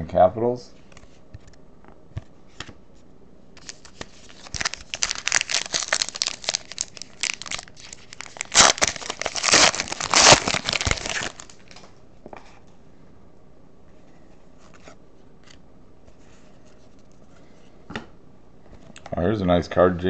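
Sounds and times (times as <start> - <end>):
plastic packaging crinkling: 3.6 - 11.9.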